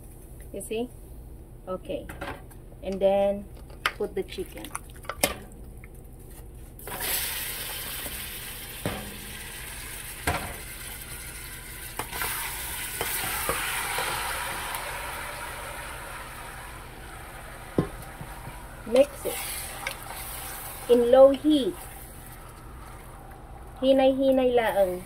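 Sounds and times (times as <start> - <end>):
chicken sizzling in hot oil: 6.8 - 23.8.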